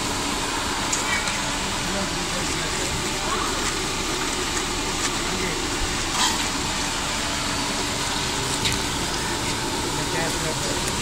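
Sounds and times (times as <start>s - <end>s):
oil crackling: 3.2s - 11.0s
food sizzling in hot oil: 3.5s - 11.0s.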